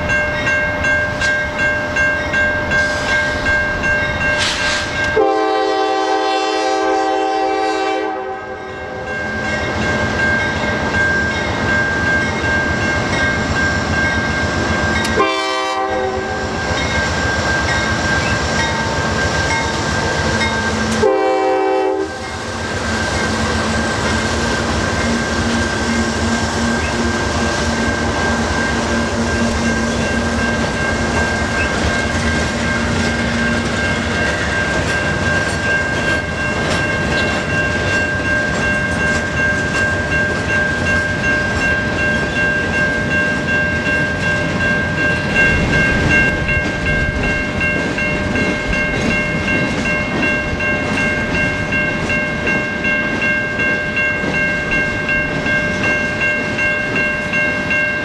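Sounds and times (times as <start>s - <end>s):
train horn blasts: 4.4s - 9.1s, 15.0s - 16.6s, 20.7s - 22.4s
freight train wheel clatter: 9.6s - 58.0s.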